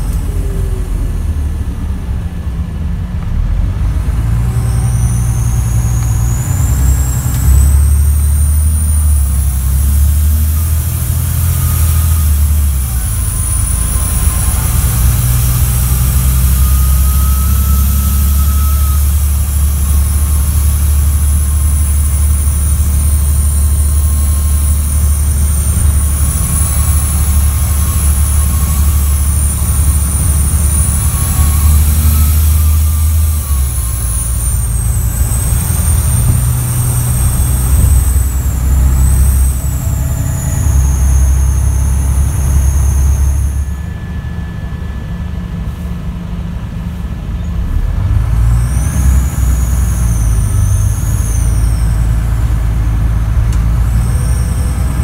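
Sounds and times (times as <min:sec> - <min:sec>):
bus engine pulling away: 0:00.0 - 0:55.0
high-pitched turbocharger whistle: 0:00.0 - 0:55.0.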